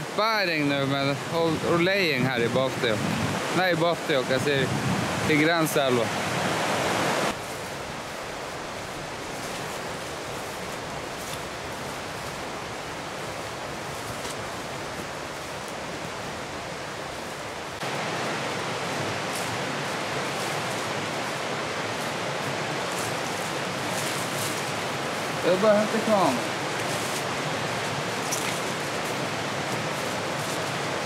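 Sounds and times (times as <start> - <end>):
river rapids rushing: 0.0 - 31.0.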